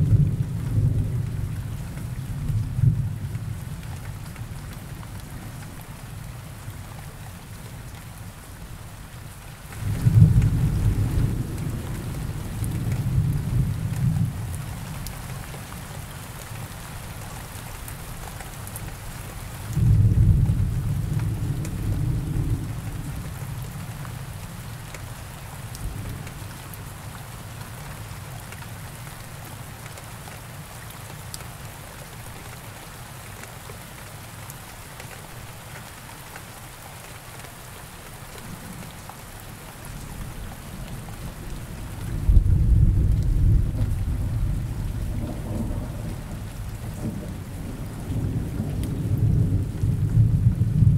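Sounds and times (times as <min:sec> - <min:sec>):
steady rain: 0:00.0 - 0:50.9
thunder rumbling: 0:40.7 - 0:50.9.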